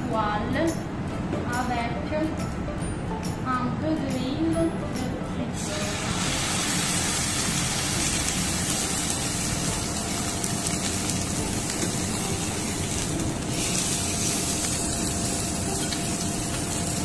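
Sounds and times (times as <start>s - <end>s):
oil sizzling in frying pan: 5.6s - 17.0s.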